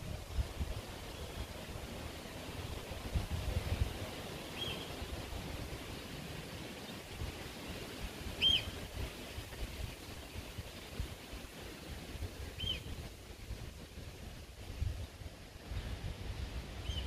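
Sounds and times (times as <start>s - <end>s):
wind rumbling on microphone: 0.0s - 17.0s
bird chirp: 4.6s - 4.9s, 8.4s - 8.8s, 12.6s - 12.9s.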